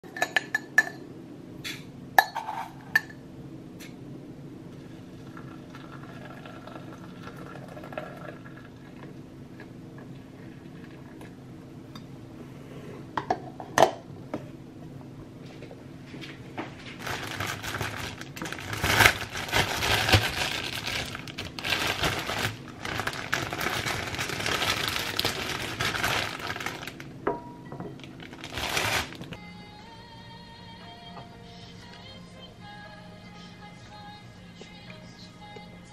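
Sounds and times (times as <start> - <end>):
plastic bread bag crinkling: 16.8 - 27.1, 28.0 - 29.4
soft background music: 28.6 - 35.9.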